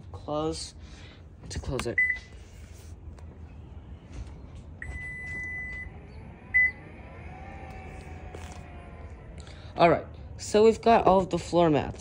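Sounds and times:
tailgate warning beeps: 0:02.0 - 0:02.3, 0:04.8 - 0:06.9
liftgate motor whirring: 0:03.5 - 0:09.6.

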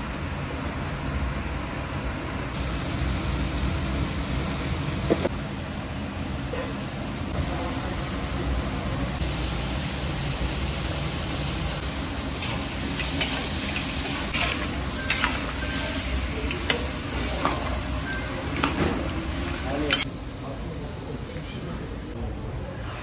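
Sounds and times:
meat and vegetables sizzling: 0:02.5 - 0:05.3, 0:07.7 - 0:20.1.

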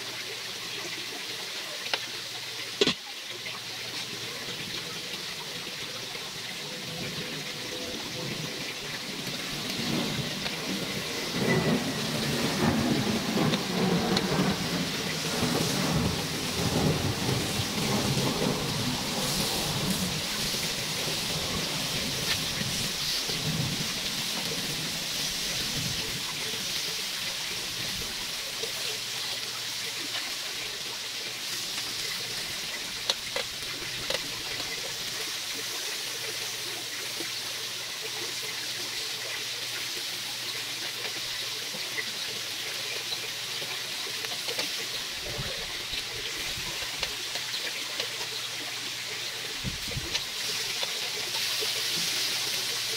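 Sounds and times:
chicken sizzling on grill: 0:00.0 - 0:52.9.

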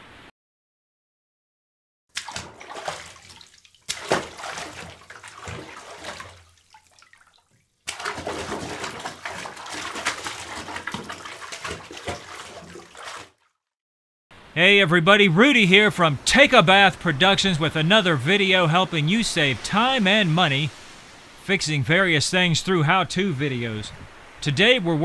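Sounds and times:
water splashing in a bath: 0:02.1 - 0:13.6.

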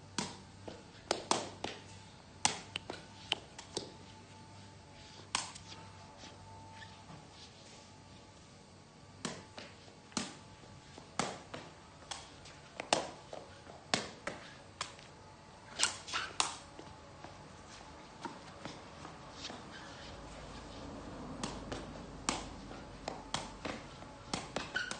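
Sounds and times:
ball being kicked: 0:21.4 - 0:24.9.

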